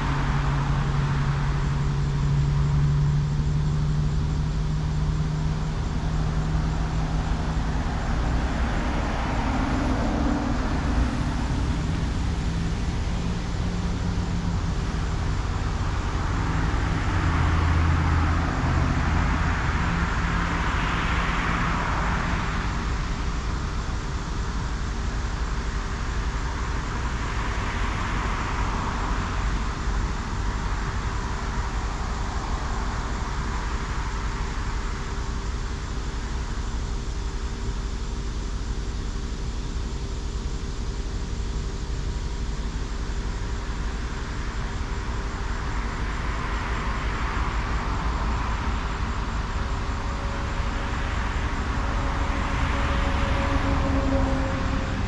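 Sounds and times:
low traffic rumble: 0.0s - 55.0s
vehicles passing: 0.0s - 55.0s.

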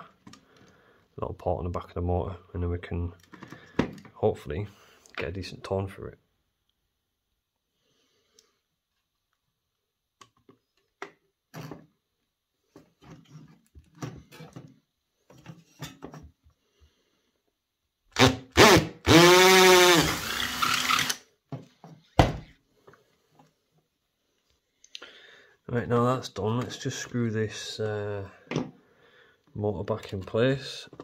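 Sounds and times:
cordless drill drilling plastic: 18.2s - 21.2s.

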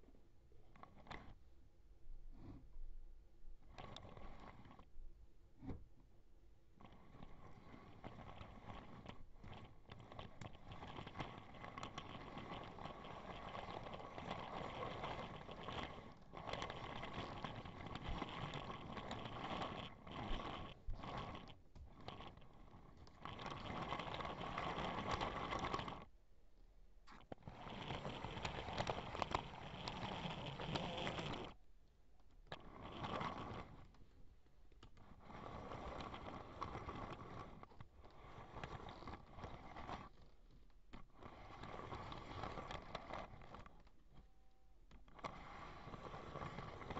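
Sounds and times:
toy train rattling on plastic track: 6.8s - 26.1s, 27.2s - 31.6s, 32.5s - 34.0s, 34.8s - 44.3s, 44.9s - 46.9s.

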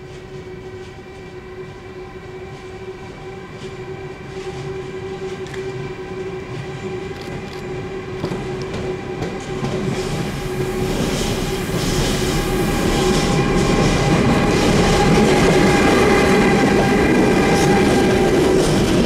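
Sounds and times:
electric locomotive hum: 0.0s - 19.0s
wheels rumbling on rails: 0.0s - 19.0s.

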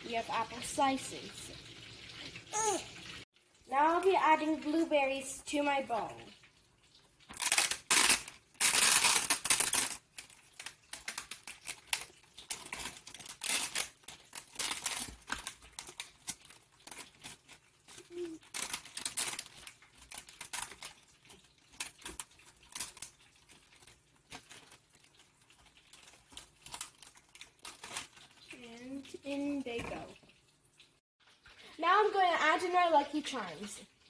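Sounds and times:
plastic clamshell crinkling: 7.3s - 28.5s.

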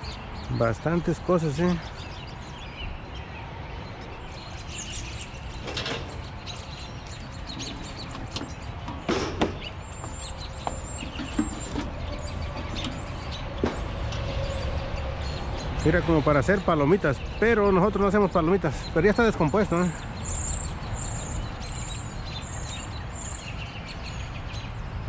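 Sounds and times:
junk knocking and clattering: 5.5s - 15.4s.

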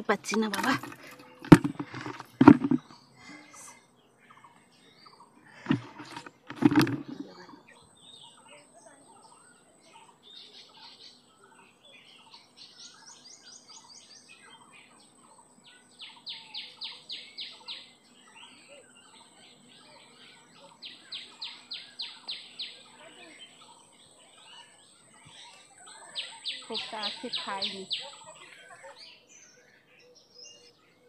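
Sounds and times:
birds chirping softly: 0.0s - 31.0s.

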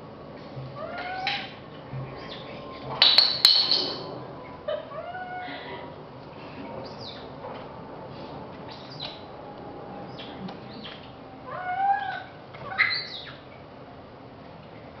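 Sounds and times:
bird calls: 0.8s - 5.5s, 6.6s - 7.4s, 8.6s - 9.3s, 10.0s - 13.6s.

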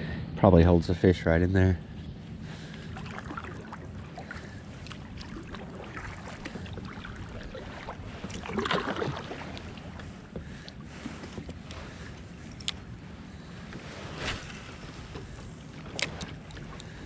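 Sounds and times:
paddle splashing in water: 2.7s - 12.1s
water trickling: 2.8s - 10.6s.

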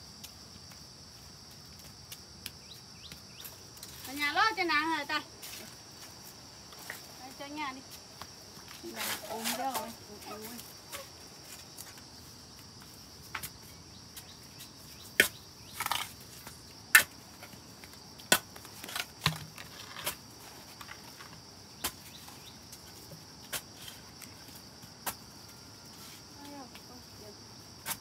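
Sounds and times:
high insect drone: 0.0s - 28.0s
scraping rustle: 8.6s - 12.0s.

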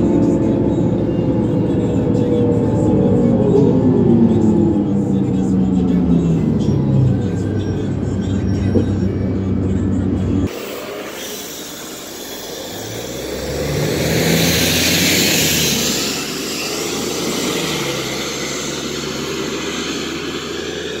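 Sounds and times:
diesel bus accelerating past: 12.8s - 21.0s.

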